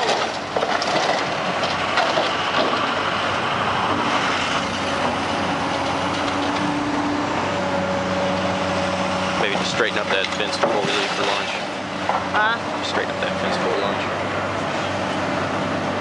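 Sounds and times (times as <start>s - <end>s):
rubble crunching and clattering: 0.0s - 3.2s, 4.9s - 7.0s
excavator diesel engine: 0.0s - 16.0s.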